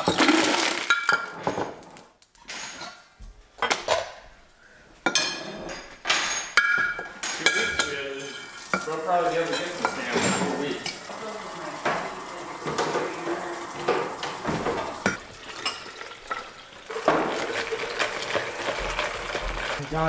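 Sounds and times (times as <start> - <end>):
ice cubes clattering into glass jar: 0.0 - 1.6, 15.6 - 19.8.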